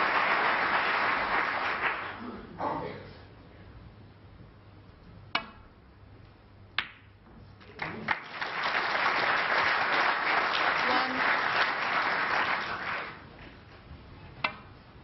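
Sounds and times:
audience applause: 0.0 - 2.2, 7.6 - 13.3
snooker balls clicking: 14.3 - 14.8.

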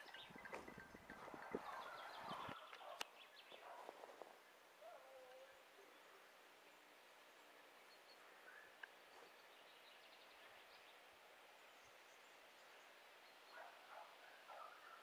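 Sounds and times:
distant dogs baying: 0.0 - 6.4, 13.5 - 15.0
faint bird chirps: 4.8 - 11.0.

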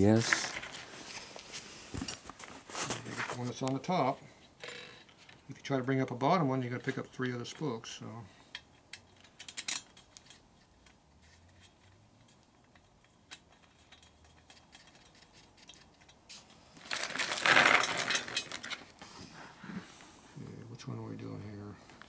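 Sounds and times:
metal spokes clicking and rattling: 8.9 - 18.9.

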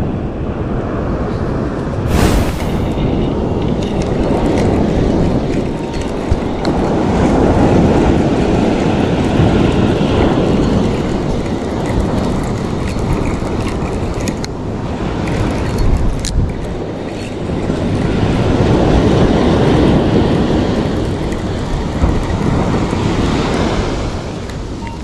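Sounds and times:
wind buffeting microphone: 1.5 - 24.8
surf breaking: 2.0 - 3.3.

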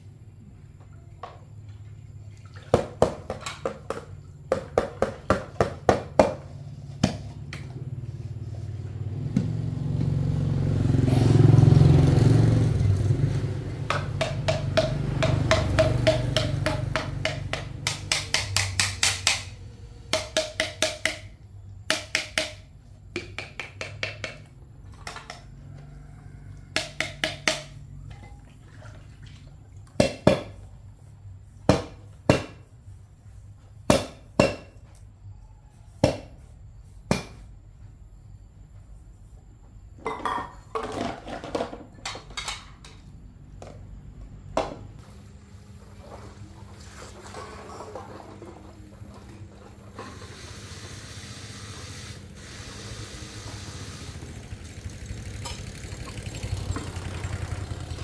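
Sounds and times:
motor engine humming: 7.7 - 17.9, 51.8 - 58.0.

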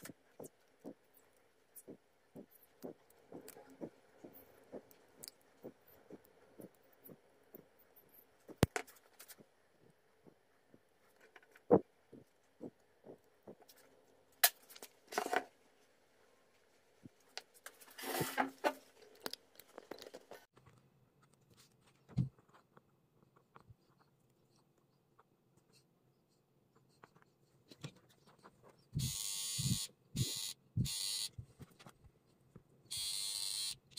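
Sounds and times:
rustling scrapes: 17.6 - 19.1.

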